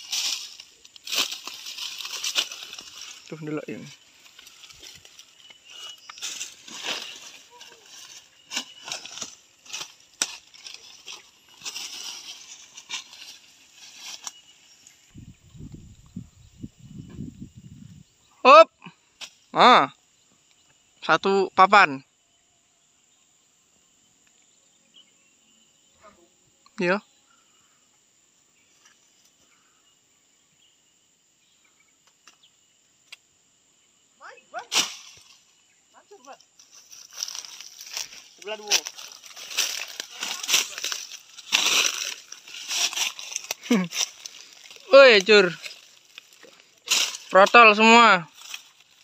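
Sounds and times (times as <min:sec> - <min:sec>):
twigs snapping underfoot: 0:00.0 - 0:03.3, 0:04.2 - 0:15.0, 0:34.7 - 0:35.4, 0:36.6 - 0:47.6, 0:48.3 - 0:49.0
footsteps rustling through dry leaves: 0:00.0 - 0:15.2, 0:34.7 - 0:35.5, 0:36.5 - 0:49.0
high-pitched insect drone: 0:00.0 - 0:49.0.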